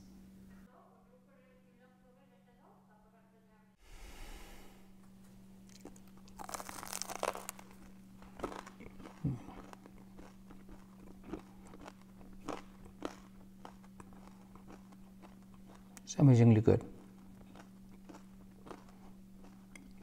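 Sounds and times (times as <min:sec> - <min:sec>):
faint steady hum: 0:00.0 - 0:20.0
crunchy bite into pastry: 0:05.7 - 0:15.8
chewing with small crackles: 0:05.7 - 0:20.0.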